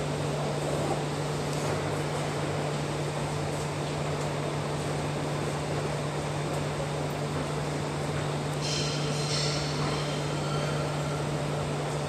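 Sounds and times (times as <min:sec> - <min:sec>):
ventilation air noise: 0:00.0 - 0:12.0.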